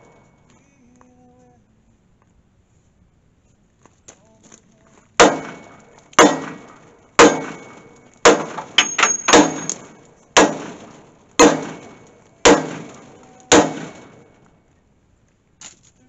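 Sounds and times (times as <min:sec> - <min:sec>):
sledgehammer clanging on steel: 0:05.2 - 0:14.4.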